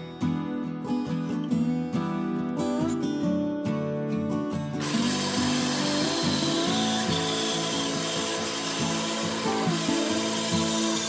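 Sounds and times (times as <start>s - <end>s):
acoustic guitar music: 0.0s - 11.0s
band saw cutting wood: 4.8s - 11.0s.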